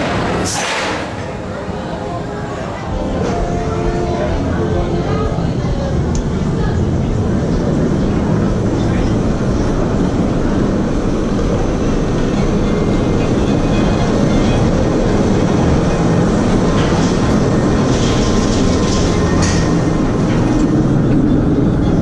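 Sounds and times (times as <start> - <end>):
roller coaster lift chain clatter: 0.0 - 1.6, 7.4 - 22.0.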